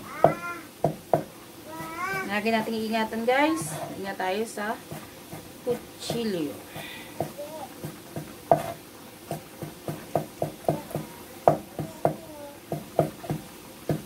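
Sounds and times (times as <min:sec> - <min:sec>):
cleaver chopping on wooden board: 0:00.2 - 0:02.3, 0:06.1 - 0:14.0.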